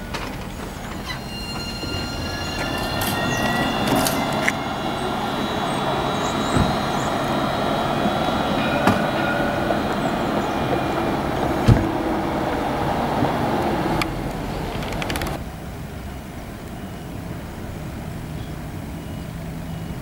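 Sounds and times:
tram rolling on track: 0.0s - 20.0s
high whining tones: 0.4s - 14.8s.

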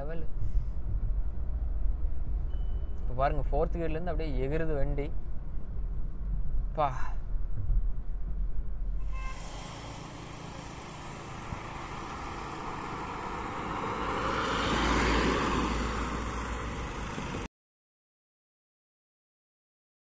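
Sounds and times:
car passing by: 9.1s - 17.5s.

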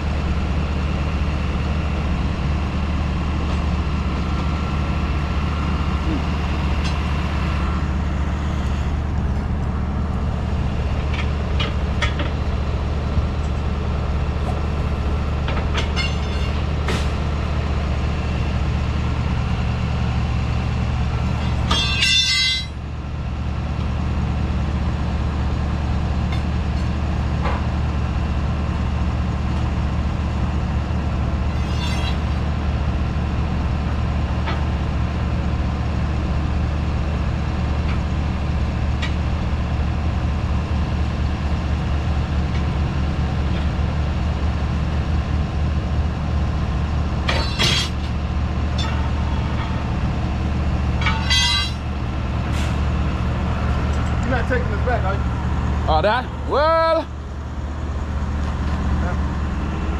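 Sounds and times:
truck engine idling: 0.0s - 59.9s.

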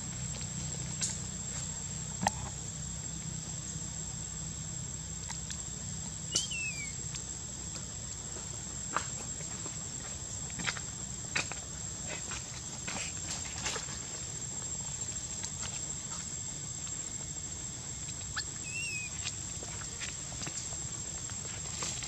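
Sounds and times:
wavering chirp: 6.3s - 7.0s, 18.3s - 19.2s.

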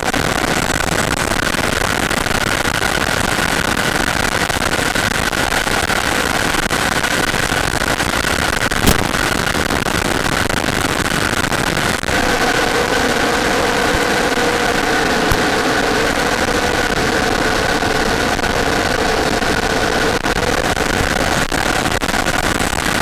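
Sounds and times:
loud wind rush: 8.3s - 23.0s
model jet engine whine: 8.6s - 23.0s
sharp click: 8.8s - 9.2s.

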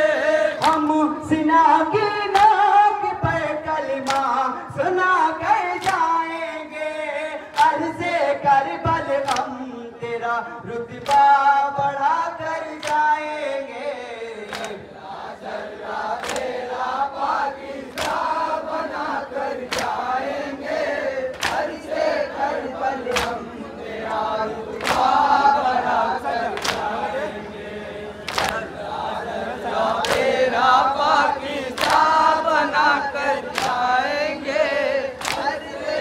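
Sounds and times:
men chanting in unison: 0.0s - 36.0s
hands slapping bare chests: 4.0s - 4.3s, 5.8s - 6.1s, 9.2s - 9.5s, 14.5s - 14.8s, 16.2s - 16.5s, 17.9s - 18.3s, 19.7s - 20.0s, 21.3s - 21.7s, 23.1s - 23.4s, 24.8s - 25.2s, 26.6s - 26.9s, 28.3s - 28.6s, 30.0s - 30.4s, 31.8s - 32.2s, 33.5s - 33.8s, 35.2s - 35.6s.

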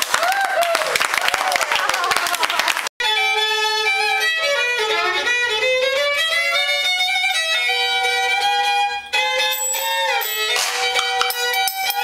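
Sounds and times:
bowed fiddle sliding notes: 3.0s - 12.0s.

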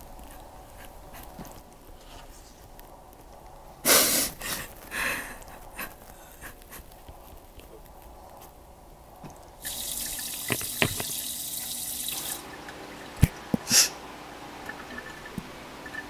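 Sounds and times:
kitchen tap running: 9.6s - 16.0s.

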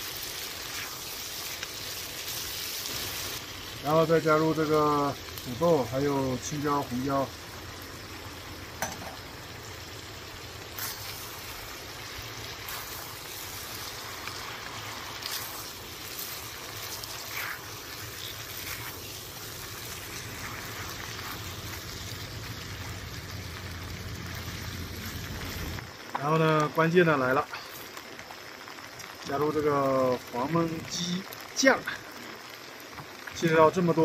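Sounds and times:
food frying in oil: 0.0s - 34.0s.

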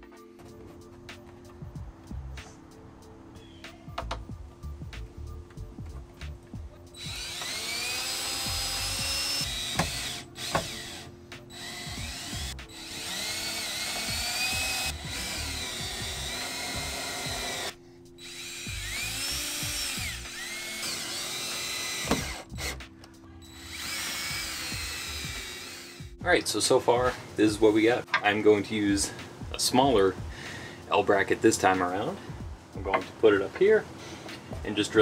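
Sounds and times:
cordless drill driving screws: 7.0s - 22.8s, 23.5s - 26.1s.

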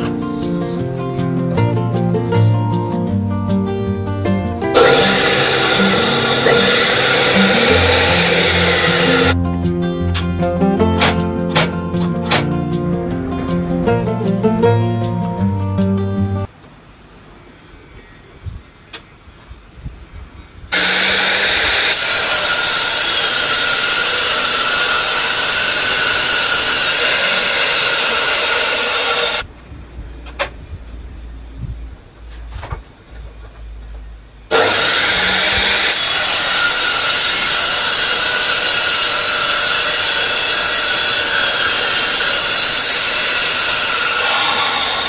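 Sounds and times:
circular saw cutting wood: 4.6s - 9.4s, 10.1s - 13.7s, 20.7s - 29.5s, 34.5s - 45.0s.

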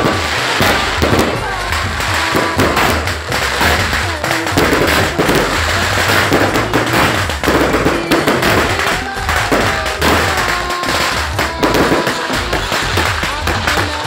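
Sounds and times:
firecrackers popping: 0.0s - 14.0s.

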